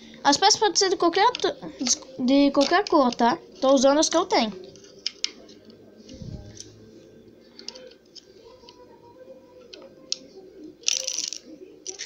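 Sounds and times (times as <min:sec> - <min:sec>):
plastic bricks clicking: 0:10.8 - 0:12.0.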